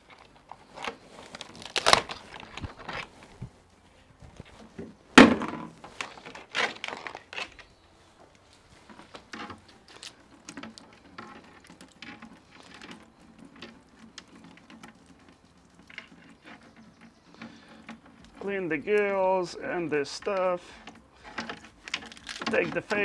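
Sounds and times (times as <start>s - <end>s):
crab shell cracking: 0.4s - 2.2s, 21.7s - 22.5s.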